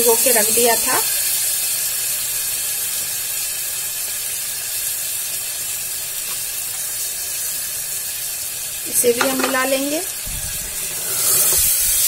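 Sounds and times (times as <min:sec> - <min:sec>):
food sizzling in pressure cooker: 0:00.0 - 0:12.0.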